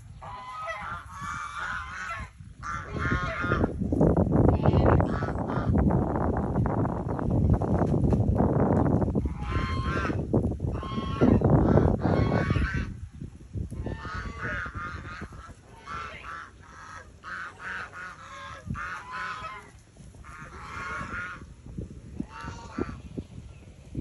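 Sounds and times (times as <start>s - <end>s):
geese honking: 0.1s - 3.7s, 4.7s - 5.7s, 9.3s - 10.2s, 10.8s - 12.9s, 13.8s - 21.5s, 22.2s - 23.0s.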